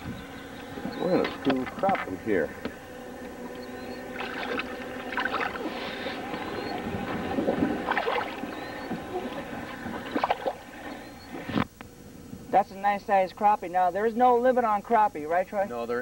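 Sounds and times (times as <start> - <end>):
boat motor humming: 0.0 - 12.1
water splashing: 3.2 - 11.6.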